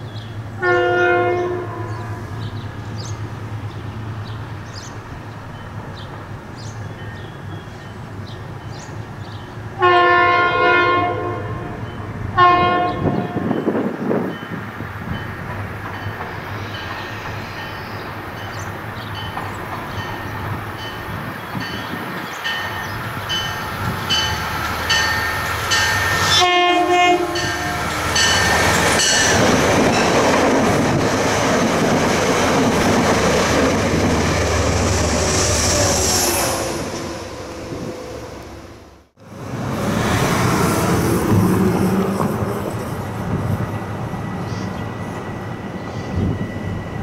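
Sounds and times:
train rumbling past: 0:00.0 - 0:47.0
train horn chord: 0:00.6 - 0:02.2, 0:09.8 - 0:11.8, 0:12.4 - 0:13.6, 0:26.3 - 0:27.9.

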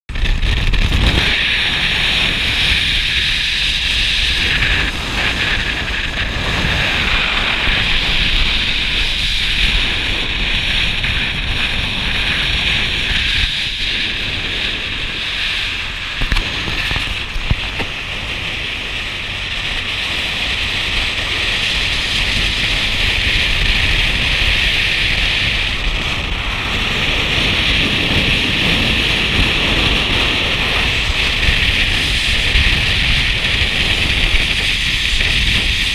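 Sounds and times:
low rumble of car and road: 0:00.1 - 0:35.9
wind buffeting microphone: 0:00.1 - 0:35.9.

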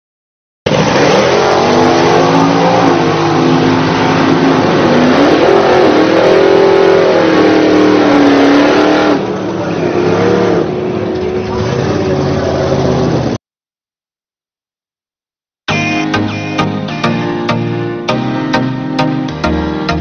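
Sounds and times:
drag racing car engine revving: 0:00.7 - 0:13.4.

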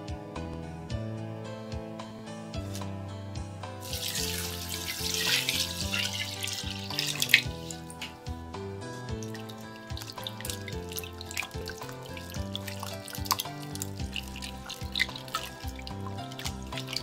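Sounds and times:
gentle background music: 0:00.0 - 0:17.0
water splashing into strainer: 0:03.8 - 0:08.2, 0:09.1 - 0:17.0.

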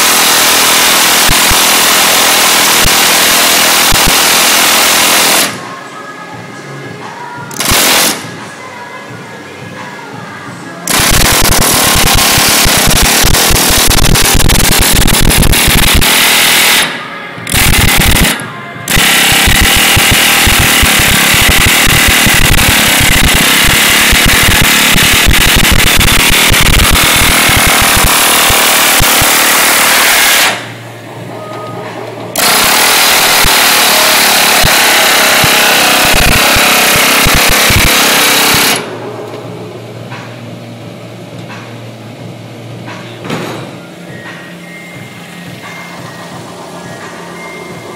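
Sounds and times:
pneumatic air hammer on metal sheet: 0:00.0 - 0:05.6, 0:07.5 - 0:08.4, 0:10.9 - 0:30.8, 0:32.3 - 0:38.9.

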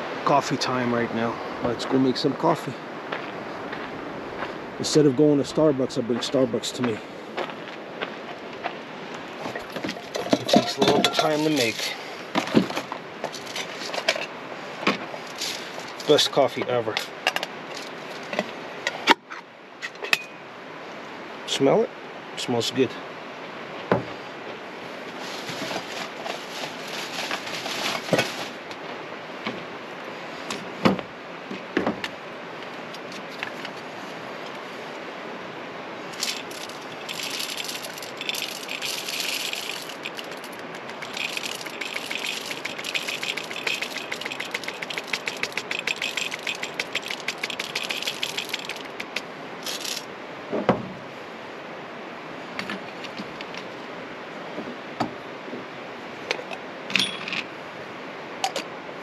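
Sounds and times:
coffee beans rattling: 0:09.5 - 0:12.0, 0:36.2 - 0:50.1
metal clinks and knocks: 0:09.5 - 0:12.0, 0:36.2 - 0:50.1, 0:56.9 - 0:57.5.

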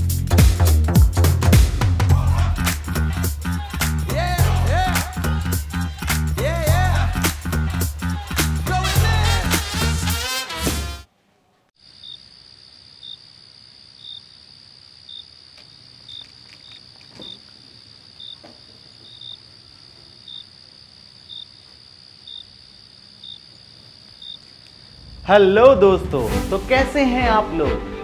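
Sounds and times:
background music: 0:00.0 - 0:11.1, 0:25.2 - 0:28.0
crickets chirping: 0:11.8 - 0:26.2.

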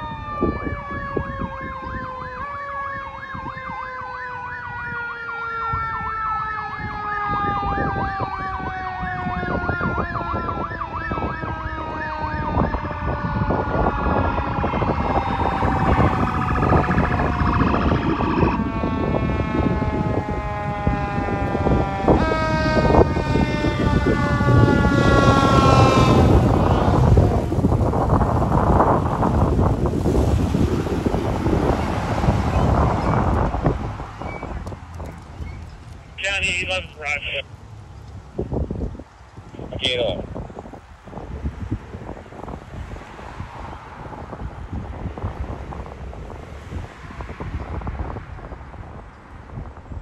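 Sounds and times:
fast warbling siren: 0:00.0 - 0:27.4
long siren tone: 0:00.0 - 0:28.1
fire engine engine noise: 0:00.0 - 0:46.8.

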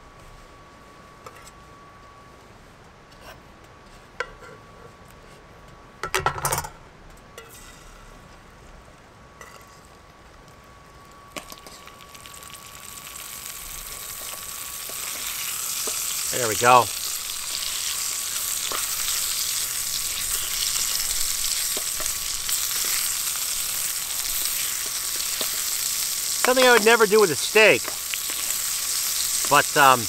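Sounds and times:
bacon sizzling: 0:11.3 - 0:30.0.

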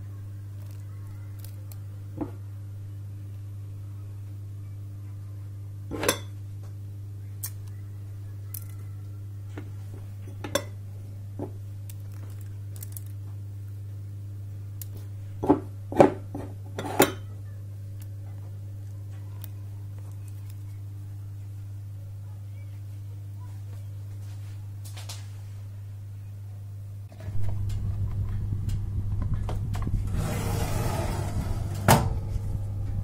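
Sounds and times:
steady low hum: 0:00.0 - 0:33.0
light clicks and foil crinkles: 0:00.6 - 0:01.9, 0:08.4 - 0:09.6, 0:11.8 - 0:13.4, 0:18.0 - 0:20.9.

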